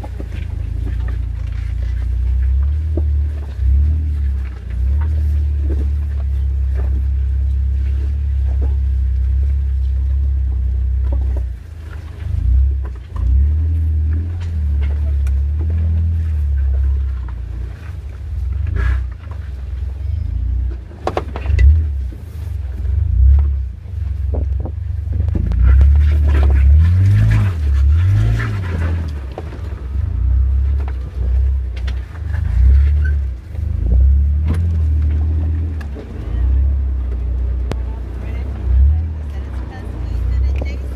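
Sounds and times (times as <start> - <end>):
engine running at low revs: 0.0 - 40.9.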